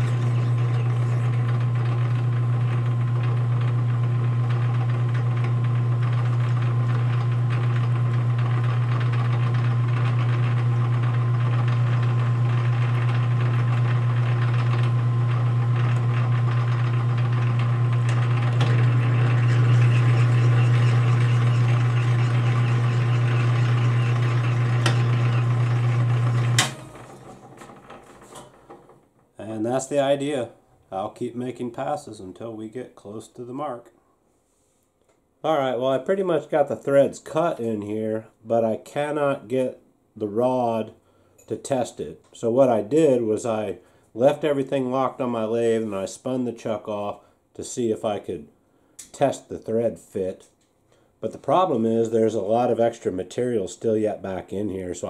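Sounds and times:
metal lathe humming: 0.0 - 28.8.

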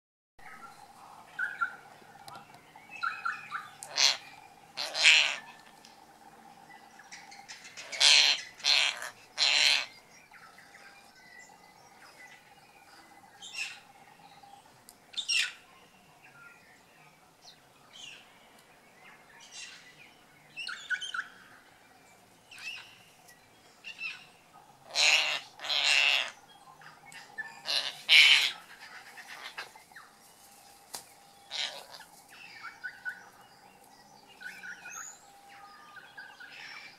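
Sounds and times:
parrot calling loudly: 3.9 - 4.2, 4.8 - 5.4, 7.8 - 9.9, 24.8 - 26.4, 27.6 - 28.6, 31.5 - 32.0.

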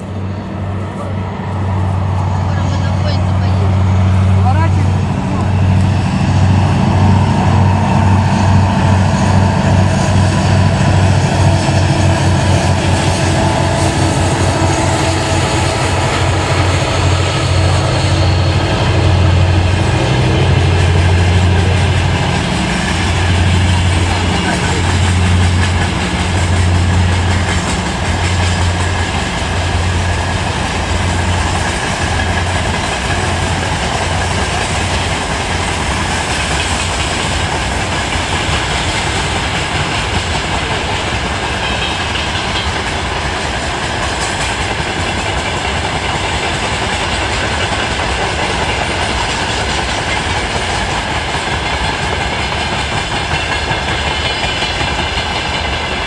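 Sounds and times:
low drone: 0.0 - 39.4
freight train wheels rumbling: 0.0 - 56.0.

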